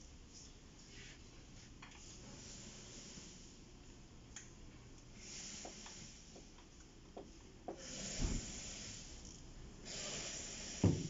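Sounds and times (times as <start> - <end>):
hiss: 2.2 - 3.6, 5.2 - 6.5, 7.7 - 11.0.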